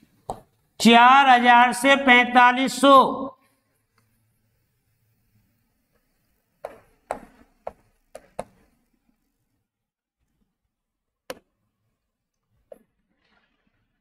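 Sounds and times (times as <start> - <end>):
chalk tapping on chalkboard: 6.6 - 8.7.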